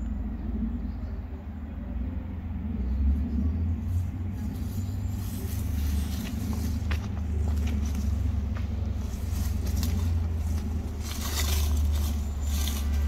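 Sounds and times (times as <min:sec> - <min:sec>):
low rumble: 0:00.0 - 0:13.0
dry leaves rustling underfoot: 0:03.8 - 0:13.0.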